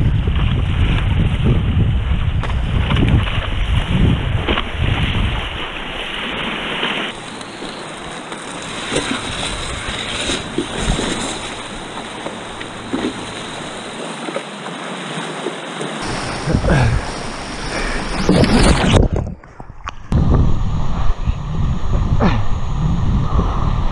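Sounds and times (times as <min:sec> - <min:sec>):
wind buffeting microphone: 0:00.0 - 0:05.8, 0:07.1 - 0:14.0, 0:16.0 - 0:23.9
water rushing and churning: 0:00.0 - 0:20.6
paddle splashes: 0:02.2 - 0:19.7.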